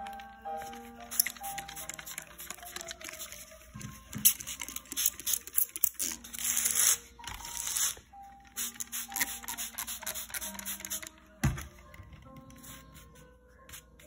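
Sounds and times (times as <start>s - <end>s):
background music: 0.0s - 14.0s.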